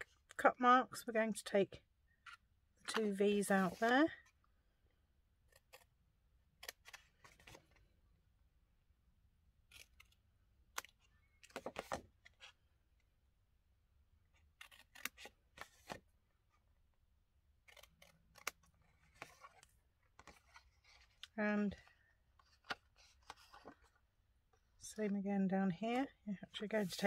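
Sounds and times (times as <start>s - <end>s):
scissors snipping paper: 14.6s - 15.9s, 17.6s - 19.6s.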